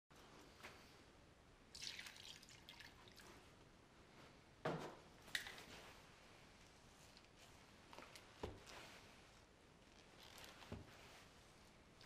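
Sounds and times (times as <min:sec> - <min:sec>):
water pouring into bucket: 0:01.7 - 0:03.2.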